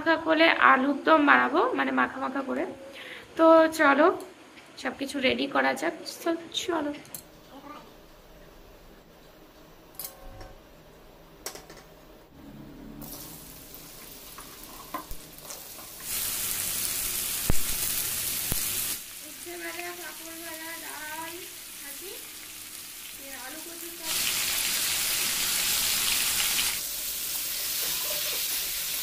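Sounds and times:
food sizzling in hot oil: 13.0s - 29.0s.

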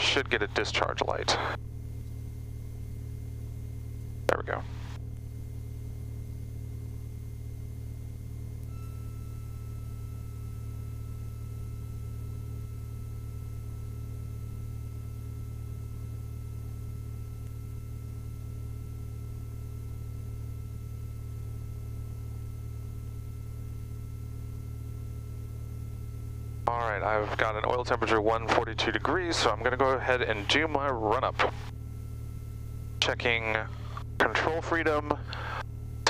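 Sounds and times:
aircraft engine low drone: 0.0s - 36.0s
thin high tone: 8.7s - 11.0s.

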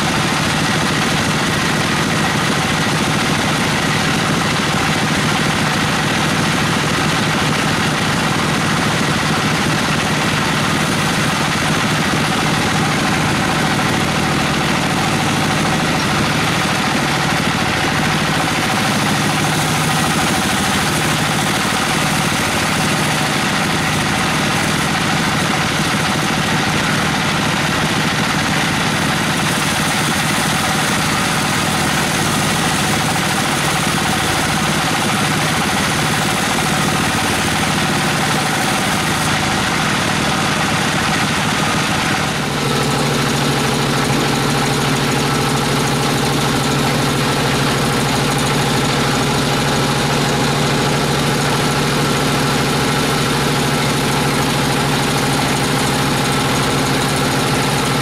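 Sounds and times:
hiss of saw cutting log: 29.3s - 39.3s.

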